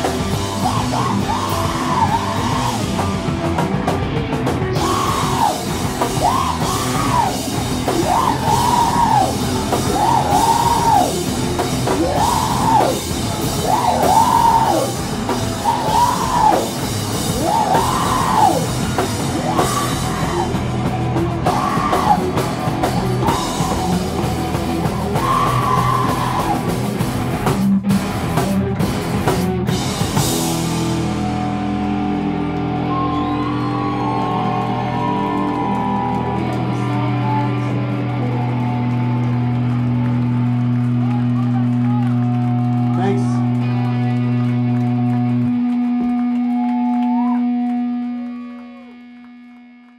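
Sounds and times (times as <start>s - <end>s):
heavy rock band playing live: 0.0s - 48.1s
person screaming vocals: 0.4s - 2.9s, 4.8s - 11.2s, 11.9s - 15.0s, 15.6s - 16.7s, 17.3s - 18.7s, 19.4s - 20.6s, 21.4s - 22.3s.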